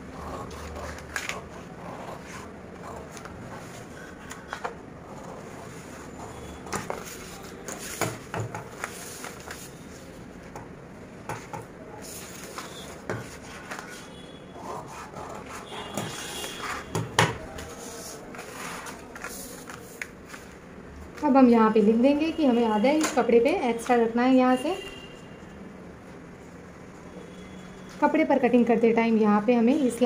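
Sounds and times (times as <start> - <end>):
paper rustling on table: 6.7 - 10.1, 12.0 - 14.1, 17.5 - 20.6.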